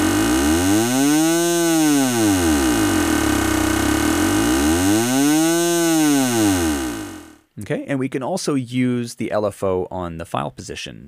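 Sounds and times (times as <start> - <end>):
buzzy synth drone gliding: 0.0 - 7.4.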